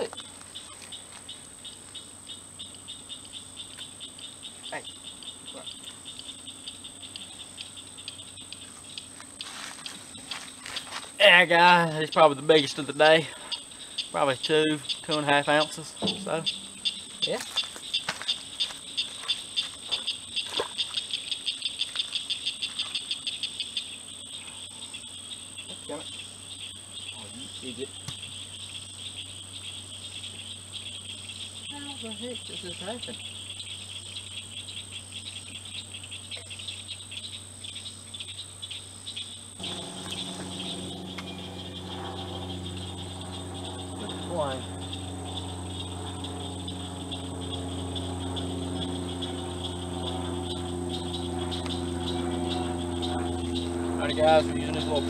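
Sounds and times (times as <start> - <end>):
small animal chirping: 0.0 - 10.0, 13.5 - 24.0, 38.2 - 55.0
high-pitched hum: 6.4 - 19.4, 39.6 - 55.0.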